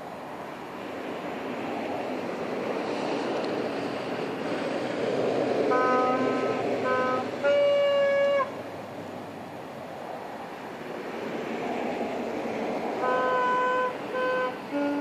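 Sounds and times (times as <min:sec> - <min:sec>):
passing vehicle rush: 0:00.0 - 0:15.0
saxophone notes: 0:05.7 - 0:08.6, 0:13.0 - 0:15.0.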